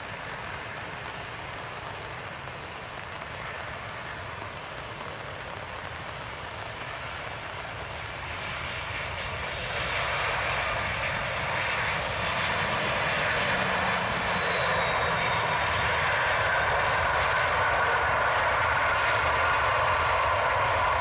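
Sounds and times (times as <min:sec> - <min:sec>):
water spray from wheels: 0:06.9 - 0:20.4
jet engines roaring: 0:07.4 - 0:21.0.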